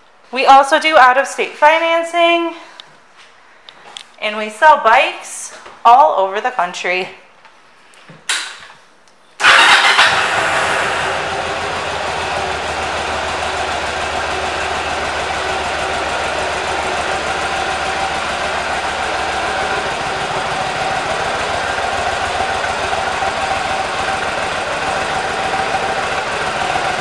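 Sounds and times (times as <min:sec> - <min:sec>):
motorcycle engine starting and idling: 0:09.4 - 0:27.0.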